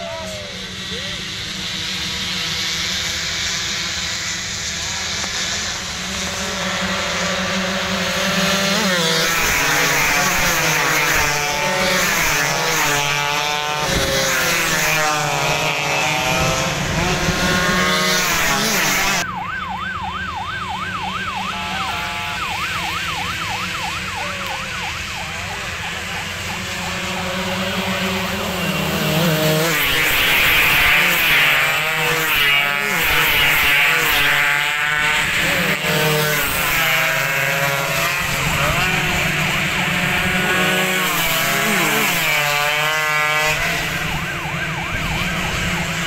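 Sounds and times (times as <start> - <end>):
distant engines: 0.0 - 46.0
racing motorcycles passing: 0.0 - 46.0
siren wailing: 15.6 - 29.8, 43.4 - 46.0.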